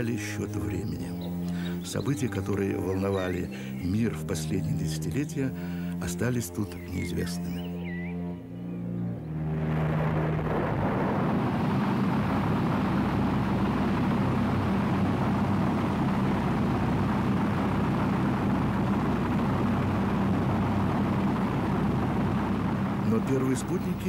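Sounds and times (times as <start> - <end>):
rocket engines roaring: 9.2 - 24.0.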